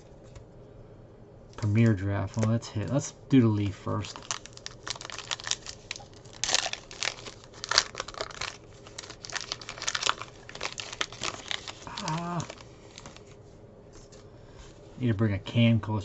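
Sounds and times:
foil wrapper tearing and crinkling: 4.0 - 13.3.

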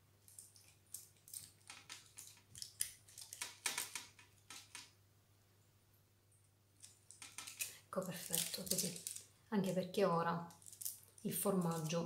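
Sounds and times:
aluminium foil crinkling: 0.2 - 4.9, 6.8 - 9.4, 10.4 - 12.0.

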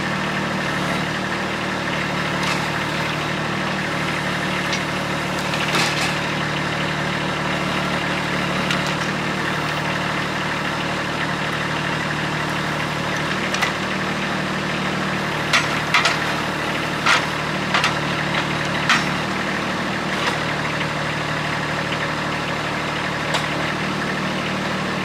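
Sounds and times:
tractor diesel engine running: 0.0 - 25.0
grapple knocks and clunks: 15.5 - 16.4, 17.0 - 19.3.

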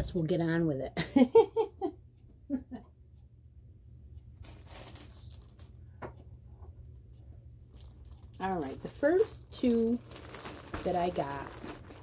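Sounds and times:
packaging rustling: 4.4 - 5.8, 7.7 - 12.0.

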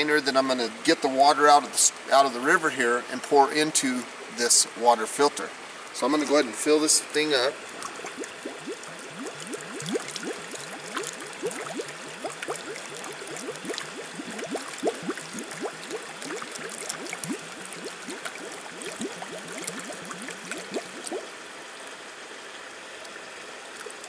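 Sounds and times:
jug gurgling underwater: 7.5 - 21.3.

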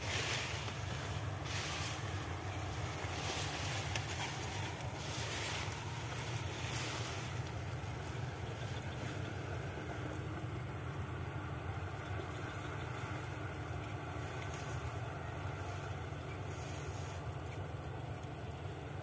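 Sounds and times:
grass rustling swishes: 0.0 - 10.0, 14.3 - 17.5.

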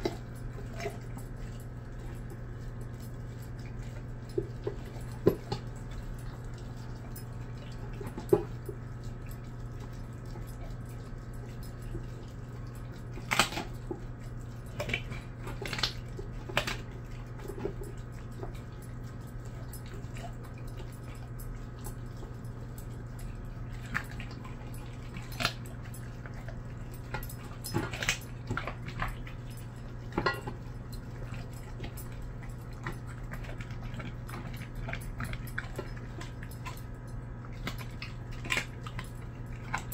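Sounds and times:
dog crunching bone: 0.0 - 39.9
steady low hum: 0.0 - 39.9
bone clicking on metal bowl: 25.3 - 36.9.

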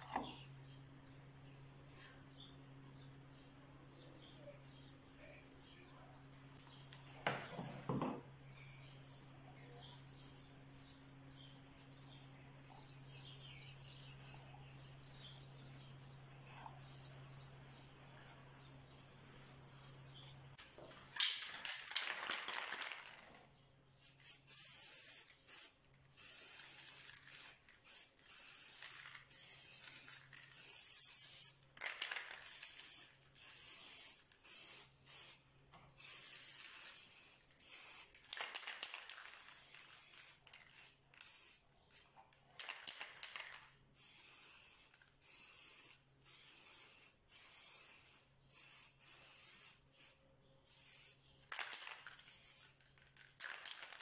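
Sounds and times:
aerosol spray can hissing: 24.0 - 35.4, 36.0 - 52.8.

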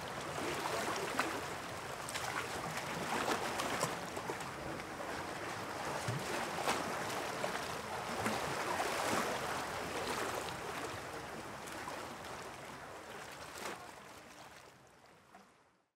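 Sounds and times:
rushing water: 0.0 - 15.2.

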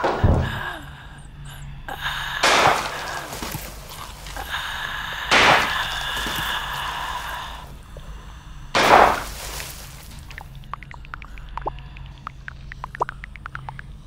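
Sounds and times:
pistol shots: 2.4 - 4.1, 5.3 - 6.0, 8.8 - 9.4
faint scattered clicks: 10.1 - 14.0.

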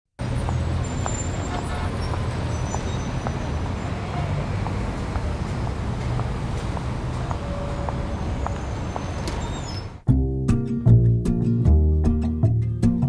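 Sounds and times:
low traffic rumble: 0.2 - 10.1.

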